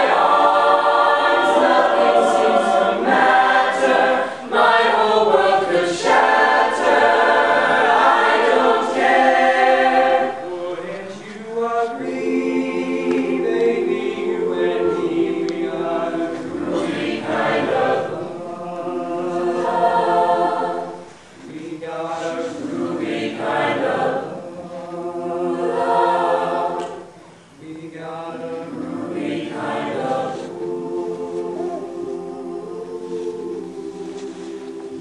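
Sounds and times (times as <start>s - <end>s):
choir singing in harmony: 0.0s - 35.0s.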